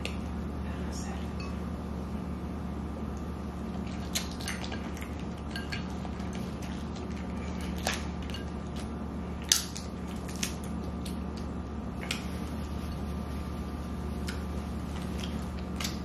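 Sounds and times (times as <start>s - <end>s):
steady low hum: 0.0s - 16.0s
wet squishes: 3.2s - 13.1s, 14.1s - 16.0s.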